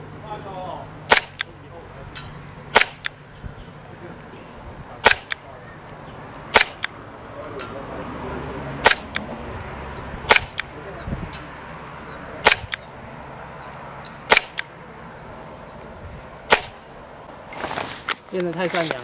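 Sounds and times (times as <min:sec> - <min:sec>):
airsoft pistol shots: 0:01.1 - 0:01.6, 0:02.2 - 0:03.2, 0:05.0 - 0:05.6, 0:06.5 - 0:07.0, 0:08.8 - 0:09.3, 0:10.3 - 0:11.5, 0:12.4 - 0:12.9, 0:14.3 - 0:14.7, 0:16.5 - 0:16.9.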